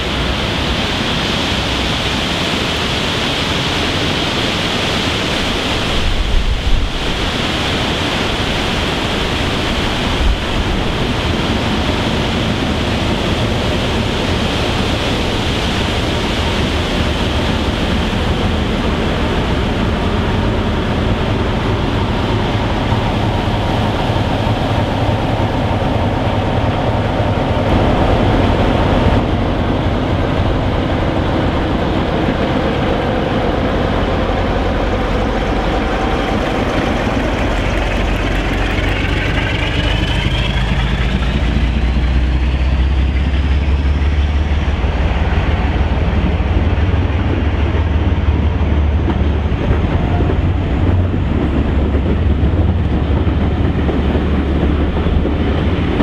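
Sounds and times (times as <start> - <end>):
diesel locomotive engine working hard: 0.0 - 56.0
rising engine whine: 4.6 - 56.0
coaches rolling past: 16.2 - 56.0.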